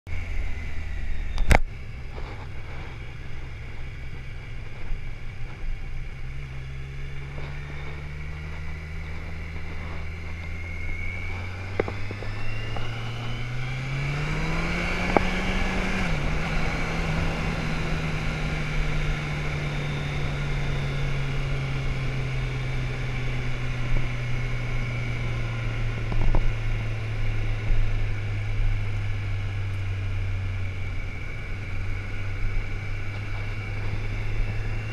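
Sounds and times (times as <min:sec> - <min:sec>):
motorcycle engine running: 0:00.1 - 0:34.9
steady rush of noise: 0:00.1 - 0:34.9.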